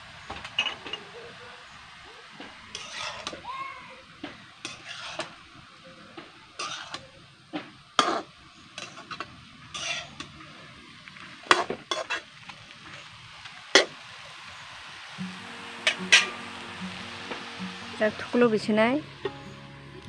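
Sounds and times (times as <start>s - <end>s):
frying sizzle: 0.0s - 20.0s
metal spatula scraping wok: 2.7s - 3.4s, 4.6s - 5.4s, 6.6s - 7.1s, 8.0s - 10.4s, 11.4s - 14.0s, 15.2s - 18.3s.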